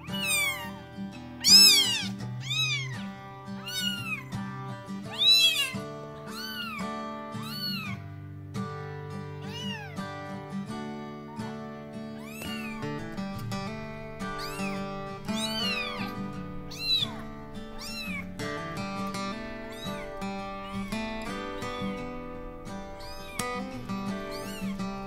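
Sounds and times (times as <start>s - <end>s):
kitten meowing: 0.0s - 4.4s, 5.0s - 8.0s, 9.3s - 10.2s, 12.1s - 25.0s
soft background music: 8.9s - 25.0s.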